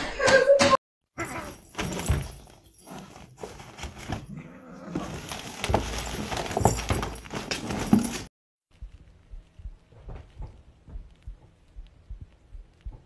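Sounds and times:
fabric tunnel rustling: 0:01.5 - 0:08.3.

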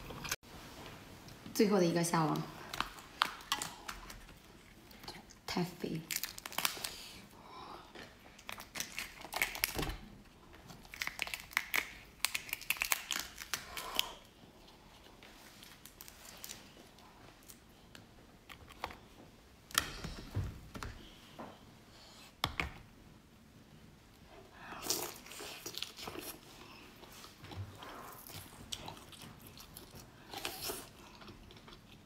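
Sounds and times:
shellfish shell cracking: 0:06.1 - 0:07.0, 0:08.4 - 0:10.0, 0:10.8 - 0:14.1.

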